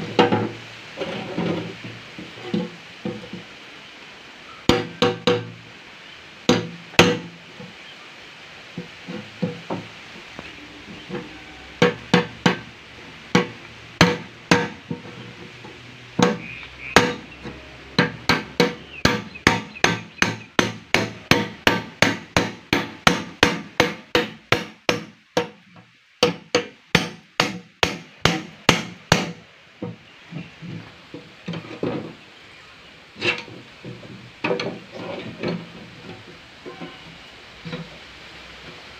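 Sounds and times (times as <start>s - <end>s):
hammer striking metal: 6.5s - 7.3s, 11.8s - 12.7s, 13.3s - 15.1s, 16.2s - 17.3s, 18.0s - 25.6s, 26.2s - 29.4s.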